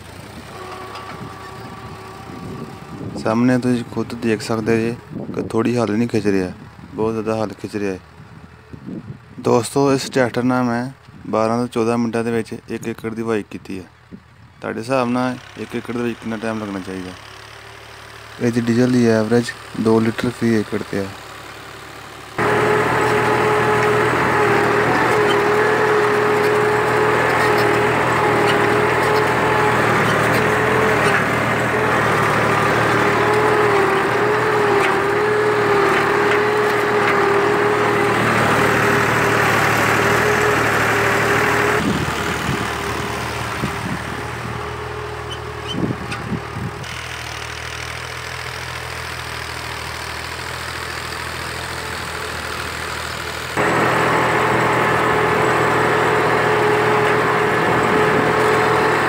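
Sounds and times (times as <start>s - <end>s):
tractor engine under load: 0.0s - 59.0s
steady whining tone: 22.4s - 46.7s.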